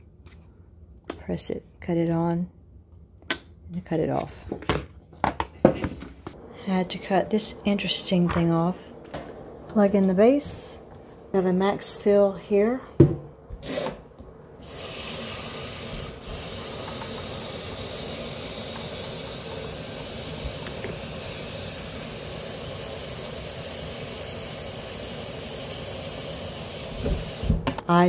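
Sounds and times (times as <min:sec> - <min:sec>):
water running into kettle: 0:14.6 - 0:27.6.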